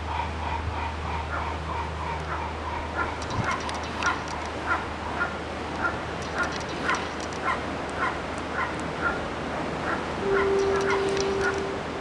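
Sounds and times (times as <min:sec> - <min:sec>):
gull begging calls: 0:10.2 - 0:11.7.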